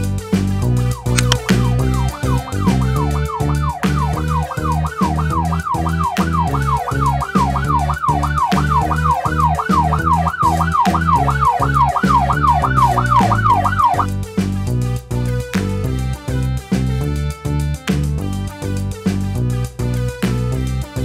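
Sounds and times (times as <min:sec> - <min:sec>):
background music with steady beat: 0:00.0 - 0:21.0
police siren yelping: 0:01.0 - 0:14.1.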